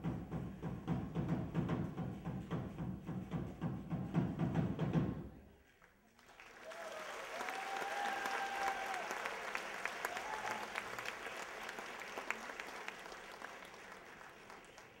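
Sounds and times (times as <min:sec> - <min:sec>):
audience applauding: 0:06.0 - 0:15.0
long held whoops: 0:06.6 - 0:11.0.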